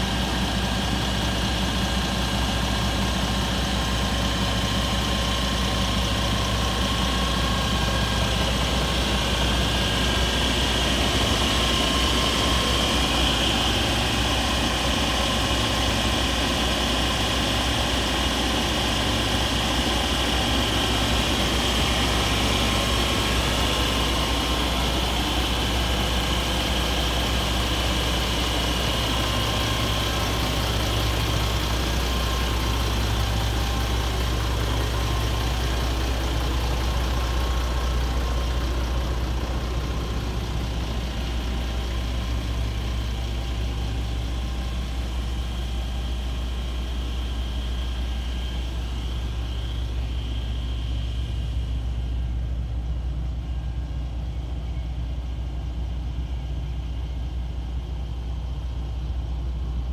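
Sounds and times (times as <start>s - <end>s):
diesel engine idling: 0.0s - 59.9s
high whine: 0.0s - 59.9s.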